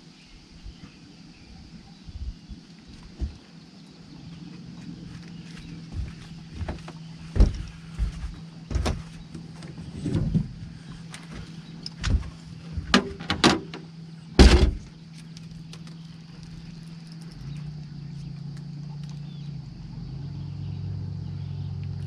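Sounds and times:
steady low hum: 0.0s - 22.0s
knocks and thumps of boat handling: 3.0s - 3.6s, 4.8s - 15.0s.

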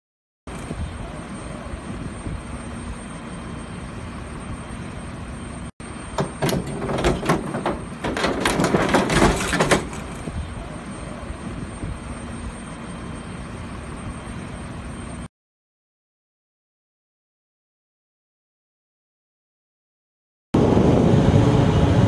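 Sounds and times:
aircraft apron noise: 6.0s - 10.4s.

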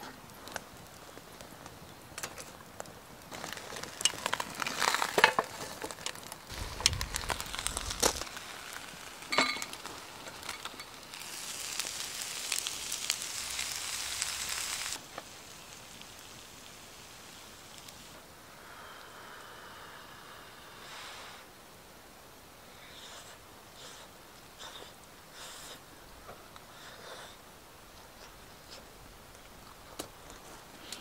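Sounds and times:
crackles and clicks: 0.0s - 18.2s
rice sizzling in pan: 3.3s - 18.2s.

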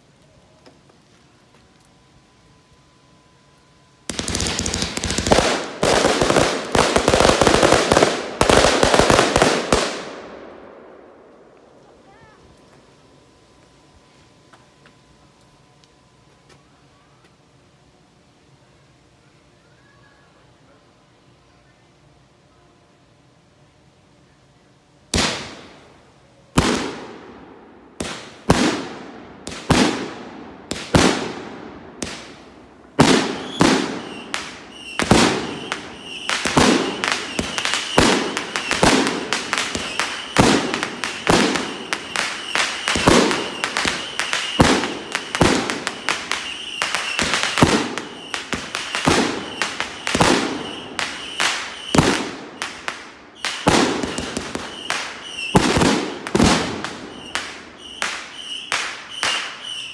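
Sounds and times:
fireworks pops and crackles: 0.0s - 2.0s, 4.1s - 10.1s, 26.5s - 27.2s, 28.0s - 59.9s
fireworks bangs: 4.0s - 10.8s, 25.1s - 25.9s, 26.5s - 59.9s
thin high whistle-like tone: 57.1s - 59.9s.

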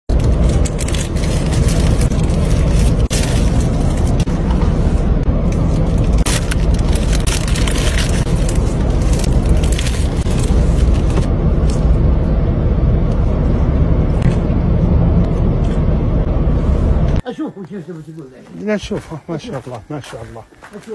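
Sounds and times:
crackly rustling and clicks: 0.1s - 4.6s, 5.4s - 11.9s
low rumble inside car: 0.1s - 17.3s.

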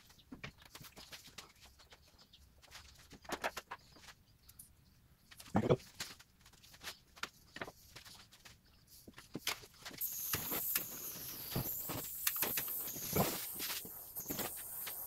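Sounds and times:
butane lighter hissing: 10.0s - 15.0s.

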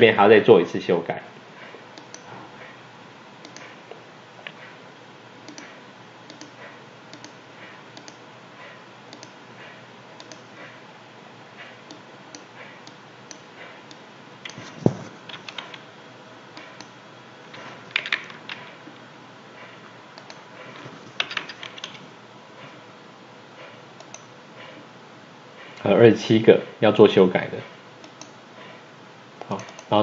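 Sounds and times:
mouse clicks: 3.4s - 3.7s, 5.5s - 5.7s, 6.3s - 7.4s, 8.0s - 8.2s, 9.1s - 9.4s, 10.2s - 10.5s
keyboard keystrokes: 14.4s - 15.8s, 17.9s - 18.7s, 21.1s - 22.0s.

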